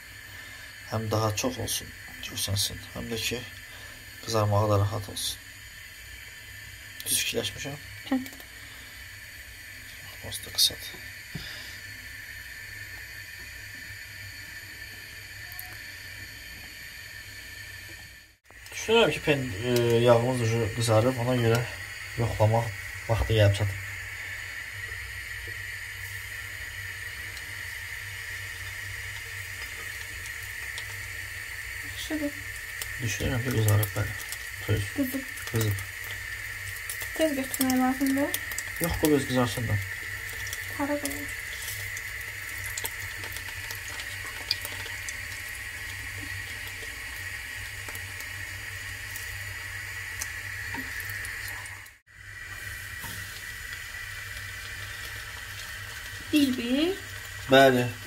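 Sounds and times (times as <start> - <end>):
oil sizzling in a frying pan: 0.0 - 58.0.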